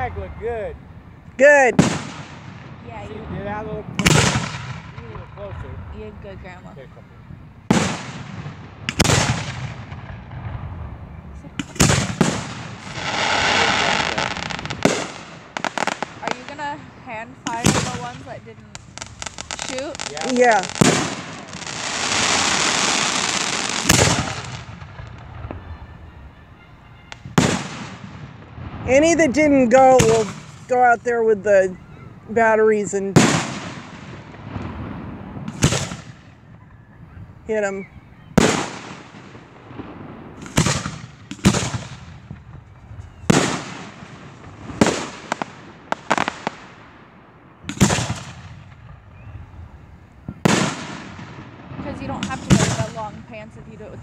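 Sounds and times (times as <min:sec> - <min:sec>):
sharp firework bang: 0:01.7 - 0:05.8, 0:07.7 - 0:25.8, 0:27.0 - 0:29.0, 0:33.2 - 0:37.2, 0:38.4 - 0:46.6, 0:47.7 - 0:49.3, 0:50.2 - 0:53.2
firework burst fizzing: 0:07.6 - 0:25.9, 0:32.4 - 0:36.4.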